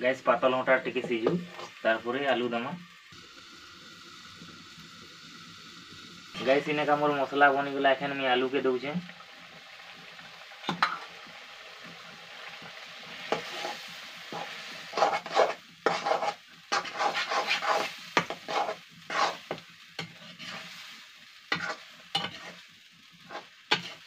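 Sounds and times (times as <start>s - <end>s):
potatoes sizzling in pan: 0.0s - 24.0s
metal ladle scraping pan: 13.2s - 22.6s, 23.2s - 24.0s.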